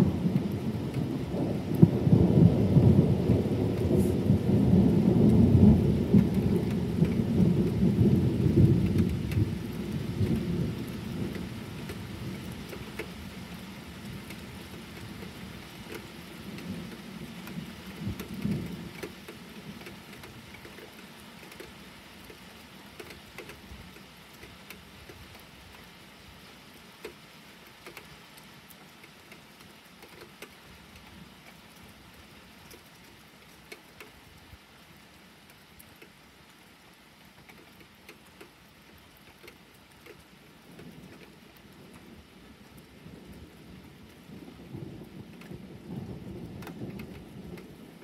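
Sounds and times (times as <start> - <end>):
thunder rumbling: 0.0 - 20.7, 40.6 - 48.0
rain falling: 0.0 - 48.0.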